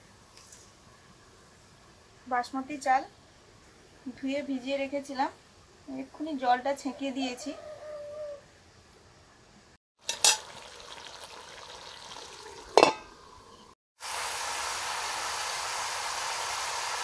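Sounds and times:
chicken sizzling in oil: 10.0s - 17.0s
metal lid clinking: 10.1s - 10.5s, 12.7s - 13.1s.

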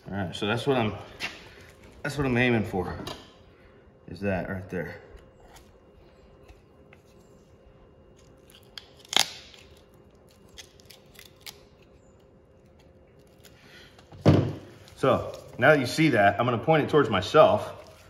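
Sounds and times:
knife snipping and crunching cartilage: 8.1s - 13.6s.

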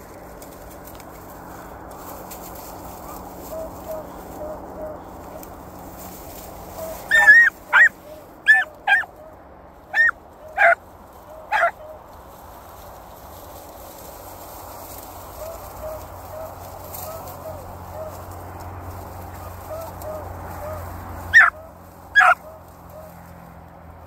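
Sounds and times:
faint low dog calls: 6.7s - 12.1s, 19.4s - 23.2s
puppy yipping: 6.8s - 9.3s, 9.9s - 10.8s, 11.4s - 12.0s, 19.7s - 23.1s.

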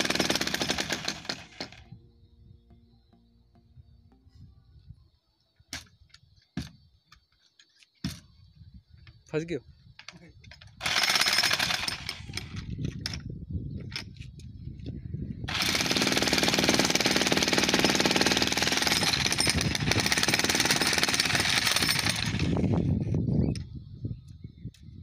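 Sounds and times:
demolition hammer chiselling concrete: 0.0s - 1.8s, 10.8s - 12.5s, 15.5s - 22.5s.

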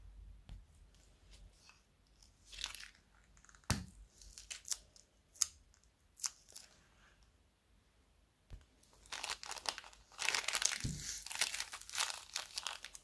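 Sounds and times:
plastic bag crinkle: 8.8s - 13.0s.

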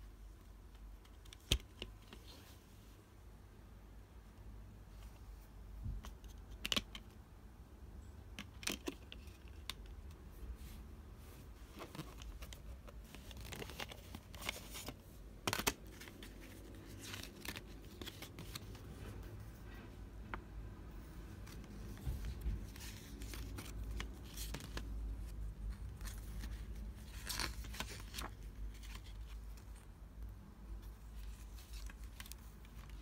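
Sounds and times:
paper rustling: 10.6s - 19.8s, 21.1s - 29.9s, 30.8s - 33.0s.

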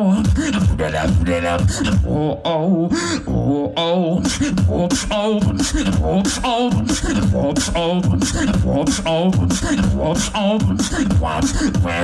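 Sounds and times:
beatboxed deep bass line: 0.0s - 12.0s
beatboxing snares and clicks: 4.2s - 12.0s.

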